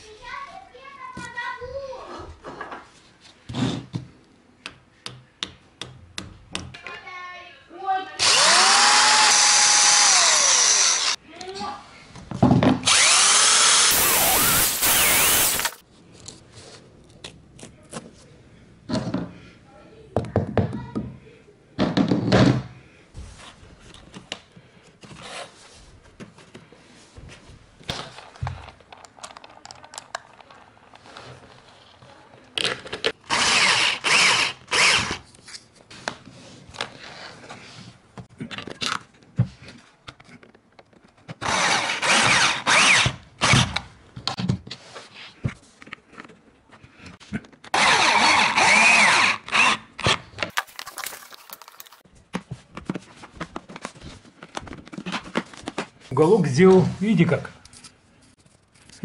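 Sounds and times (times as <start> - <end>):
cordless drill driving screws: 8.2 - 11.2, 12.8 - 15.8, 33.3 - 35.2, 41.4 - 43.8, 47.7 - 52.0.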